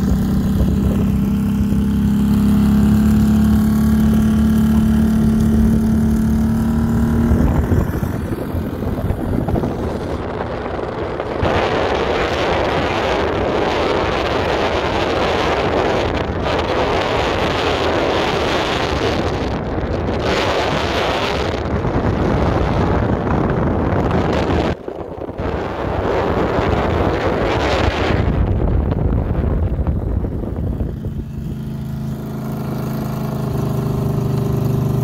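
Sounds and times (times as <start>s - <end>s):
vehicle running: 0.0s - 35.0s
wind buffeting microphone: 0.0s - 35.0s.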